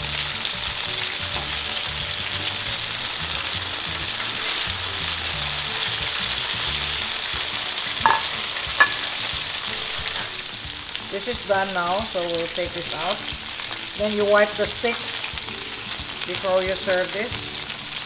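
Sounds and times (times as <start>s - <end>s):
meat sizzling on grill pan: 0.0s - 18.0s
metal tongs clinking on pan: 8.0s - 9.2s.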